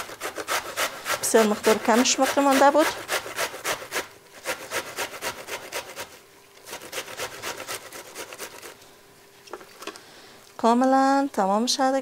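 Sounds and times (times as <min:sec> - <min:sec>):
grating on metal box grater: 0:00.0 - 0:08.8.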